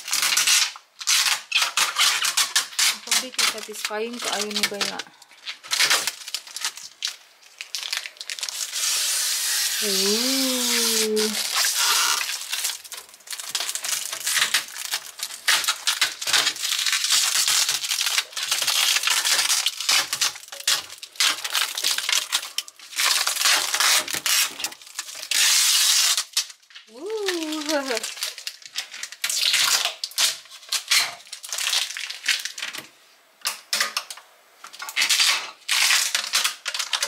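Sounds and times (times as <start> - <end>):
plastic film crinkling and tearing: 0.0 - 37.0
person making short voiced sound: 9.8 - 11.4, 26.9 - 28.1.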